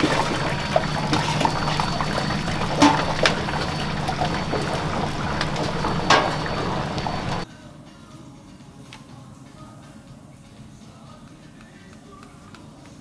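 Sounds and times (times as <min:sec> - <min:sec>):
kitchen hiss and hum: 0:00.0 - 0:07.5.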